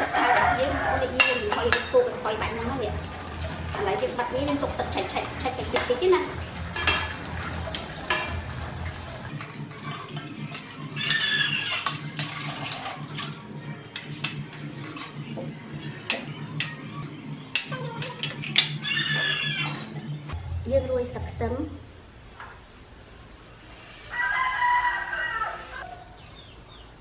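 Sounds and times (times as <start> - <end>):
ladle scraping metal pot: 9.4 - 13.4.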